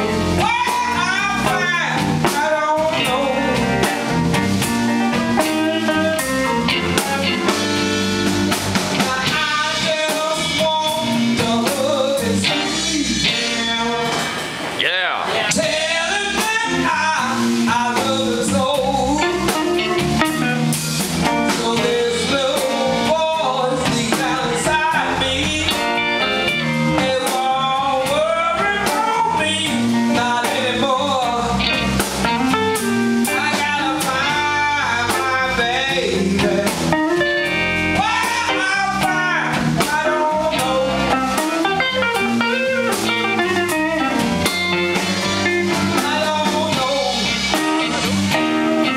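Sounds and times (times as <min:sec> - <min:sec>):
electric guitar bending notes: 0:00.0 - 0:48.9
live blues band playing: 0:00.0 - 0:48.9
woman singing: 0:00.3 - 0:03.9, 0:08.9 - 0:14.3, 0:15.4 - 0:20.5, 0:21.2 - 0:31.8, 0:33.2 - 0:43.7, 0:45.6 - 0:48.0.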